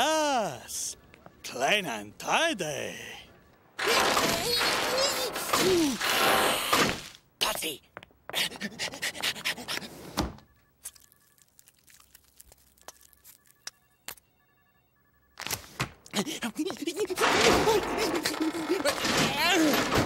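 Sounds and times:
faint beeping tones: 0.0s - 3.8s, 10.4s - 17.2s.

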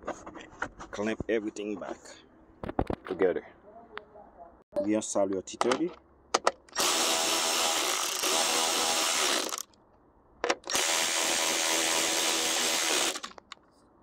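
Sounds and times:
power drill driving screws: 6.8s - 9.7s, 10.7s - 13.4s.

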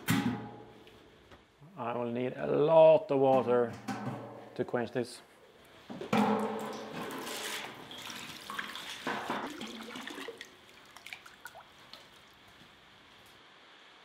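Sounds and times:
water sloshing: 6.2s - 12.8s
hose water gushing into metal tub: 6.4s - 12.2s.

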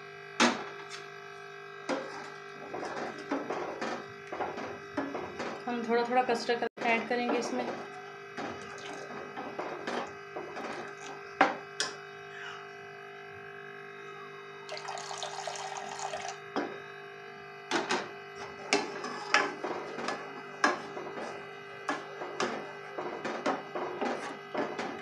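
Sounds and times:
liquid pouring with splash: 8.5s - 9.2s, 14.7s - 16.4s.

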